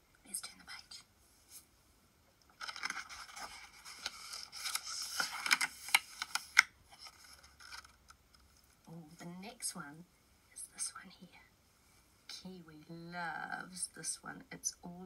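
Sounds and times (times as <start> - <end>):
book pages turning: 2.5 - 8.8.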